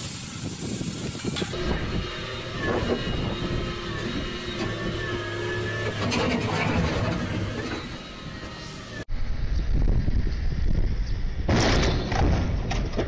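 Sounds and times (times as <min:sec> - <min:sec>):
excavator diesel engine running: 0:01.3 - 0:09.2.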